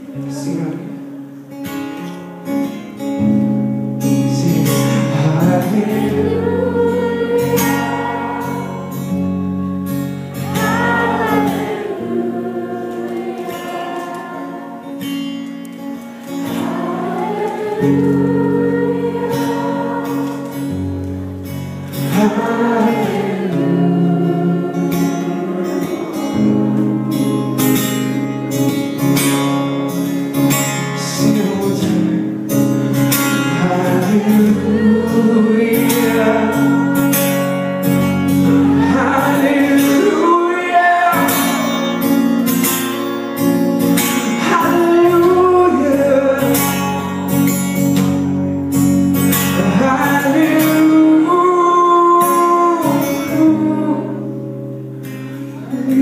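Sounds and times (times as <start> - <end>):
acoustic guitar strumming: 0.0 - 56.0
person singing: 4.3 - 8.9, 16.5 - 20.8, 22.1 - 28.9, 33.4 - 37.5, 38.4 - 42.0, 49.5 - 54.3.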